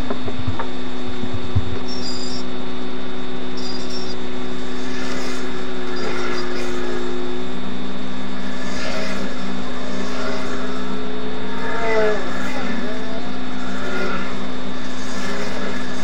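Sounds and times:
loud rushing noise with hum: 0.0s - 11.5s.

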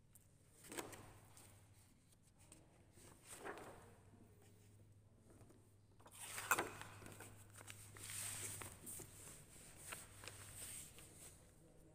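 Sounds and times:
paper and card rustling: 6.1s - 11.5s.

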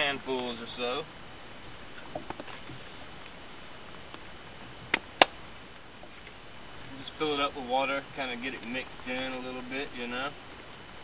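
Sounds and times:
faint background noise: 0.0s - 11.0s.

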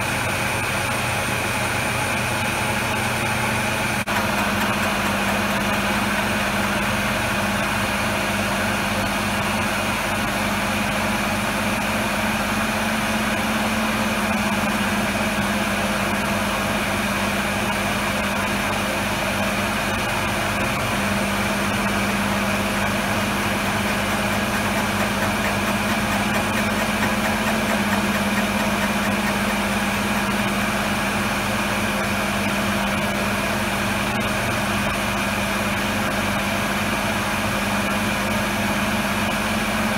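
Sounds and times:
high machine whine: 0.0s - 39.9s
milling machine humming: 0.0s - 39.9s.

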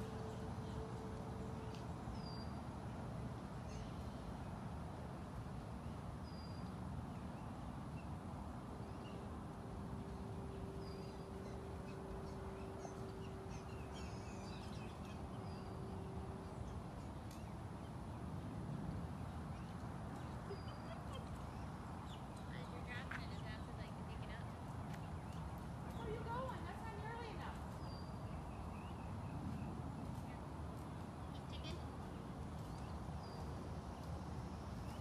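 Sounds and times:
birds chirping: 8.8s - 18.2s, 19.0s - 35.0s.

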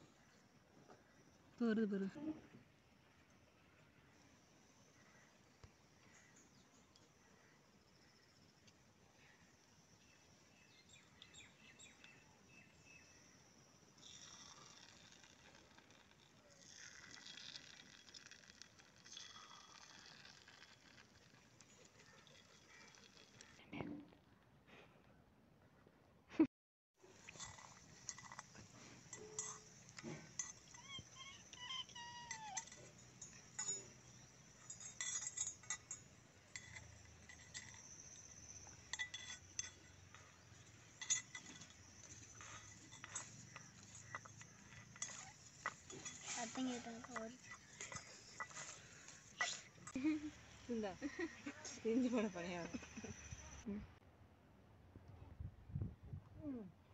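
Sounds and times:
batter sizzling in hot oil: 14.0s - 21.6s.

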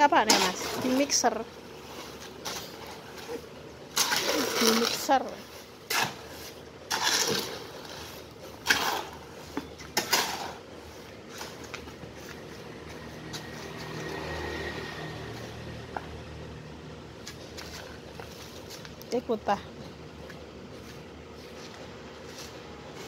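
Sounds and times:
hoe scraping wet mortar: 0.0s - 12.4s.

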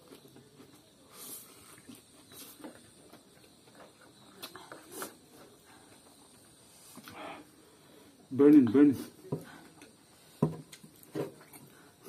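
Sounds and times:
chewing: 10.7s - 12.0s.

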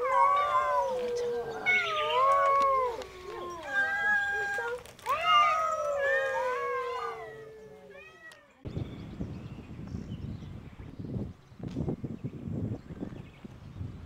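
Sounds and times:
cats meowing: 0.0s - 8.6s.

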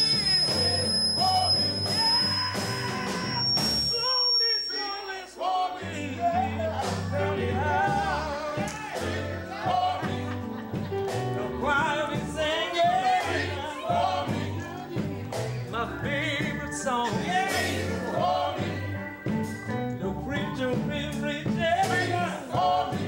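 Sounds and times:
bass line: 0.0s - 4.4s, 5.8s - 23.0s
keyboard: 0.0s - 23.0s
male vocal quartet singing: 0.0s - 23.0s.

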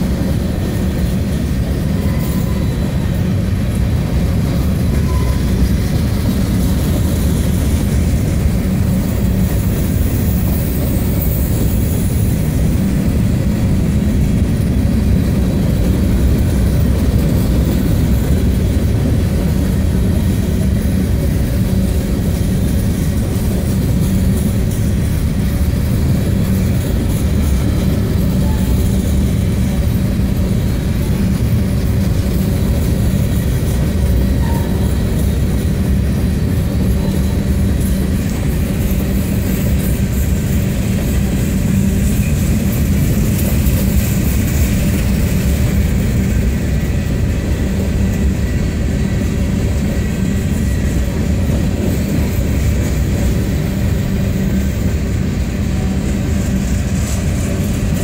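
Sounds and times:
train wheels rolling on rail: 0.0s - 58.0s.

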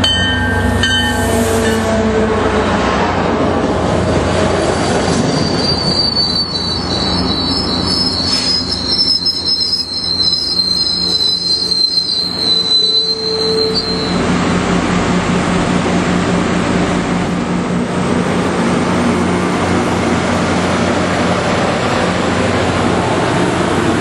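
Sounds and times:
train rumble: 0.0s - 24.0s
train wheel squeal: 5.0s - 14.3s.

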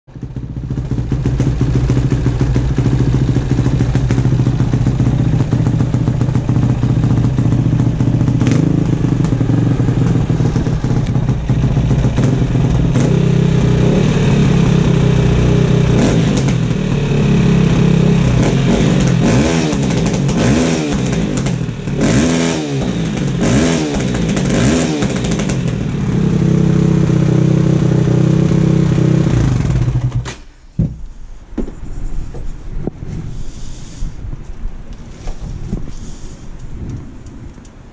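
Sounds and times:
dirt bike engine idling and revving: 0.1s - 30.3s.

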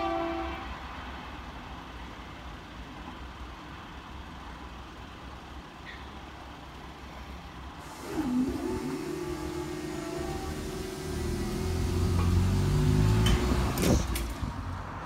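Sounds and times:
vehicles idling: 1.7s - 15.0s
barrier machinery hum: 7.8s - 14.8s.

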